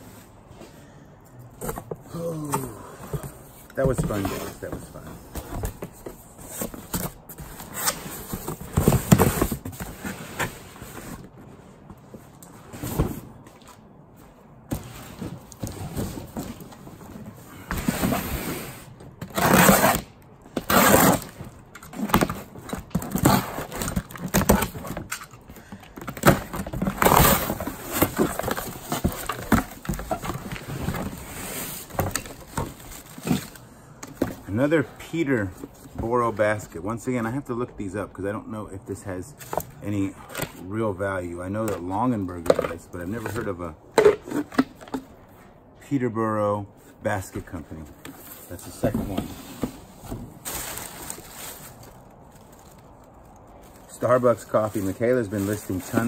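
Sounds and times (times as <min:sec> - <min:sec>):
cardboard scraping and rustling: 0:03.1 - 0:25.4, 0:26.0 - 0:33.6, 0:47.4 - 0:56.0.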